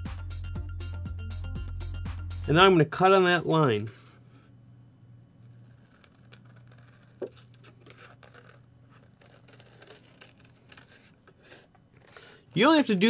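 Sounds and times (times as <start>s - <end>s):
scissors snipping fabric: 5.7s - 11.4s.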